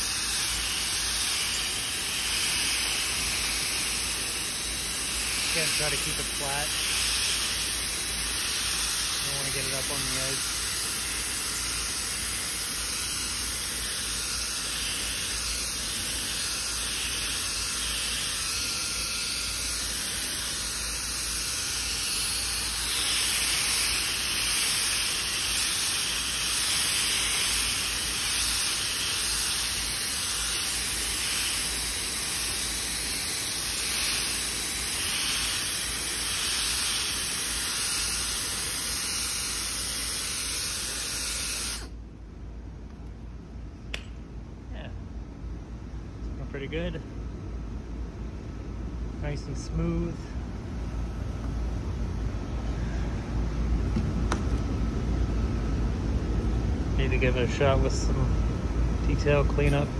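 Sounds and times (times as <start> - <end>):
pneumatic polisher hissing: 0.0 - 42.0, 59.5 - 59.9.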